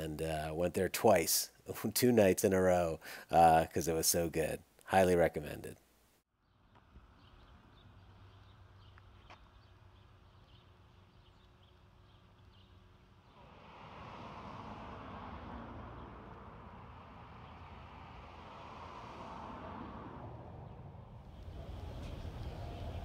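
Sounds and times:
low hum: 6.4 - 23.0
steady rushing noise: 12.8 - 23.0.

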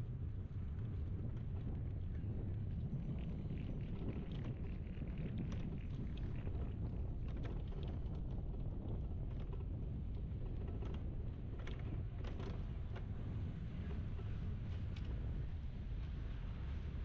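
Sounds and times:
wind on the microphone: 0.0 - 17.0.

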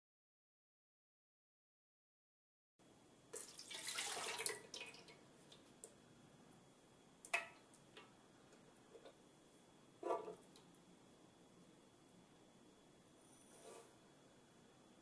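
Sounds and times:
milk pouring into metal pan: 3.4 - 5.1.

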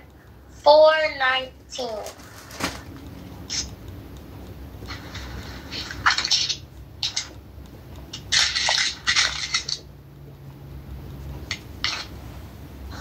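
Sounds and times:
book pages rustling: 1.8 - 3.0.

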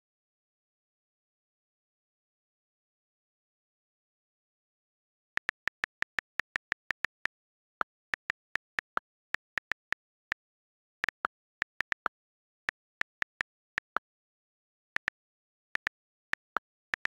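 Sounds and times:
on-screen keyboard clicks: 5.4 - 14.0, 15.0 - 17.0.

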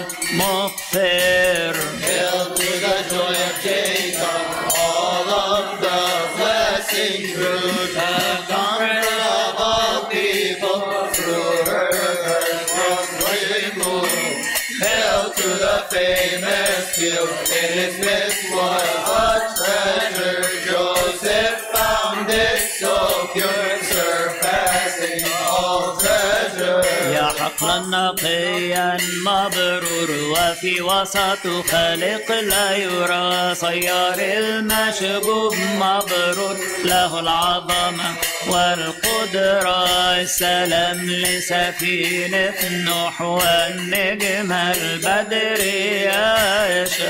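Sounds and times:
person chanting a hymn: 0.0 - 32.5
light metallic percussion beat: 0.0 - 47.0.

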